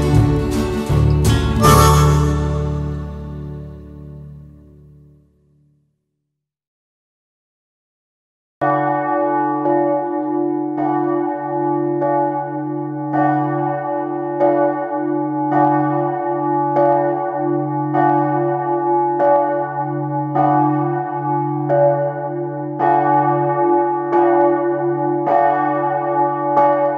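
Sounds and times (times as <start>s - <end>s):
bells ringing: 0.0s - 3.7s.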